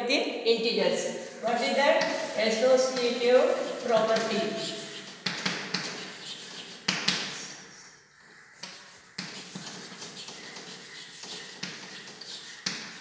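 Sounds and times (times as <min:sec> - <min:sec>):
chalk scratching on blackboard: 0:01.5 - 0:07.6, 0:08.6 - 0:13.0
chalk tapping on blackboard: 0:01.9 - 0:07.6, 0:08.6 - 0:13.0.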